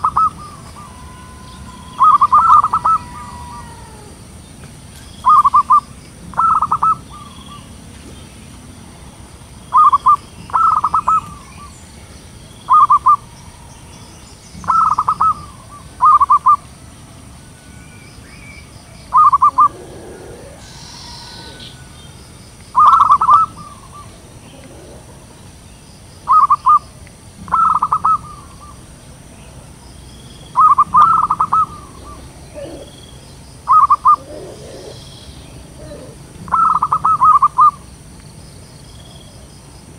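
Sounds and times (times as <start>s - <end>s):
dove cooing: 0.0s - 4.4s, 5.2s - 7.8s, 9.7s - 11.8s, 12.7s - 13.9s, 14.6s - 16.6s, 19.1s - 22.2s, 22.8s - 25.5s, 27.5s - 28.8s, 30.6s - 37.8s
high hiss: 0.0s - 36.4s
birds chirping: 0.0s - 39.9s.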